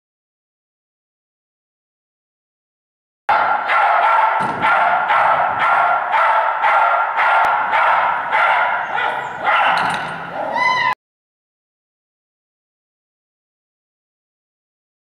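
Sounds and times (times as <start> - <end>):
dog barking: 3.3 - 10.6
dog yelping: 3.3 - 11.0.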